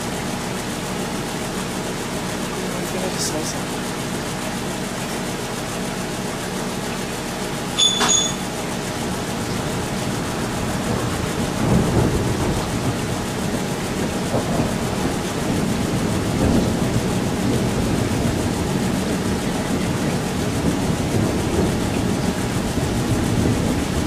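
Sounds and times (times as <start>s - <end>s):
steady background hum: 0.0s - 24.0s
sharp click with high ring: 7.8s - 8.5s
thunder rumble: 8.5s - 24.0s.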